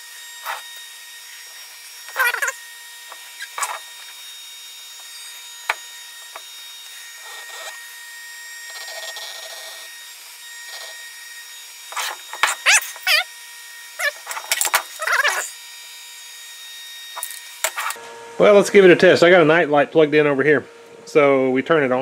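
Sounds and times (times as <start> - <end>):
squeaky rubbing and scraping: 0.4 - 0.7, 2.1 - 4.0, 11.9 - 13.3, 14.0 - 15.6, 17.2 - 18.0
paper towel rubbing wood: 2.1 - 4.1, 11.9 - 13.2.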